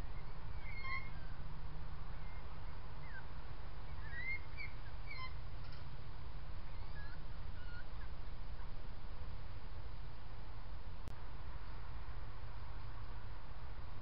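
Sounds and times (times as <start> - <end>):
steady low hum: 0.0 - 14.0
high animal chirps and squeaks: 0.6 - 1.2, 6.7 - 8.1.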